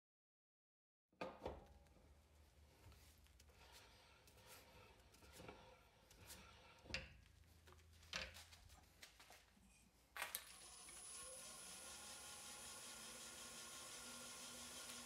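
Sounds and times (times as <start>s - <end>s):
lathe motor hum with whine: 10.6s - 15.0s.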